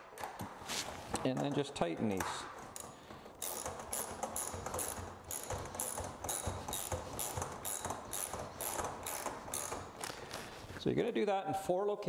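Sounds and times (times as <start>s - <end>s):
socket ratchet clicking: 2.6s - 10.4s.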